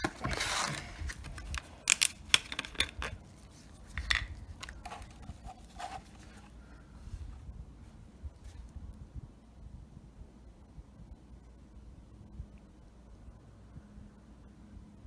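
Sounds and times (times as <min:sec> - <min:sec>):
plastic bottle screw cap twisted off: 0:00.0 - 0:03.2, 0:03.9 - 0:06.2
gloved hand handling cardboard box: 0:00.0 - 0:06.6.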